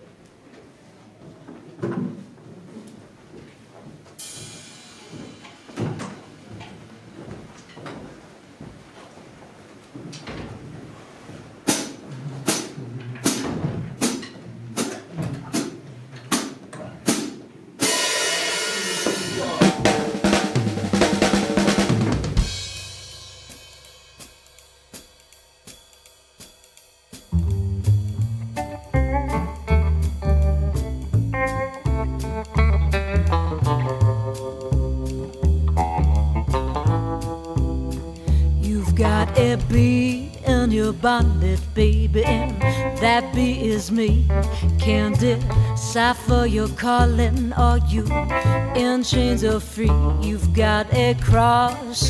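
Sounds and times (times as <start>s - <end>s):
crash of drums and cymbals: 4.2s - 6.3s, 11.7s - 14.9s, 16.3s - 29.3s
drum kit playing: 4.2s - 6.6s, 11.7s - 52.0s
cymbal shimmer: 17.8s - 19.6s.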